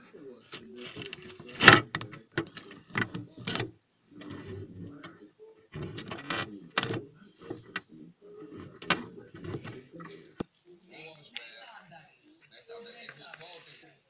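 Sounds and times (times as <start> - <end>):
plastic toys clicking and scraping: 0.5 - 4.6, 5.8 - 7.8.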